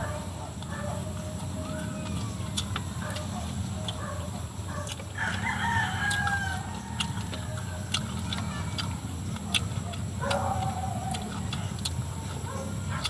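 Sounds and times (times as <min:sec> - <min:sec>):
mouth and eating clicks: 0:00.5 - 0:13.0
rooster crowing: 0:04.0 - 0:08.8.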